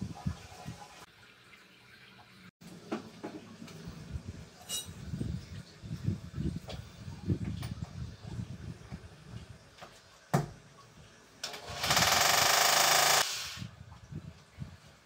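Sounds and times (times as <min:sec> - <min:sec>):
power drill running: 0:11.6 - 0:13.6.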